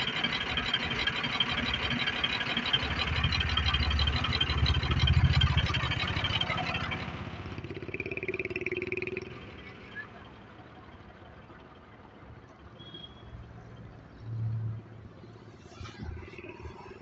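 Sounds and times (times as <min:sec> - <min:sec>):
diesel truck engine idling: 0:00.0 - 0:12.7.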